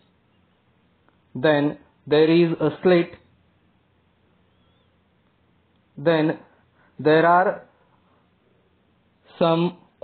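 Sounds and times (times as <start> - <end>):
man narrating: 1.3 - 3.3, 6.0 - 7.7, 9.3 - 9.9.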